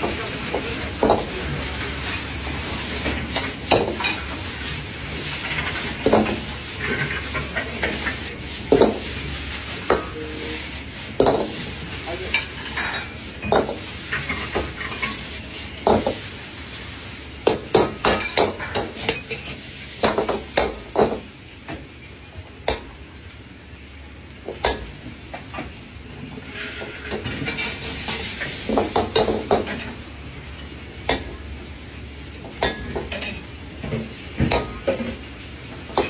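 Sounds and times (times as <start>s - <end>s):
frying hiss: 0.0s - 36.0s
metal ladle scraping a wok: 6.7s - 8.2s, 26.4s - 28.6s.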